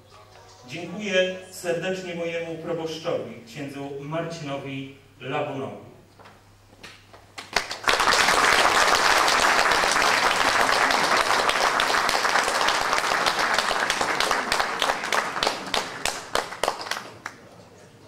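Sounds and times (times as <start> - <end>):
audience applauding: 7.4 - 17.5.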